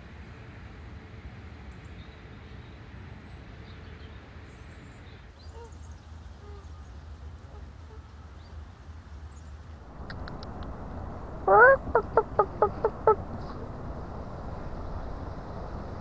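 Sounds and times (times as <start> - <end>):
low rumble: 9.8 - 16.0
faint short bird calls: 9.9 - 13.9.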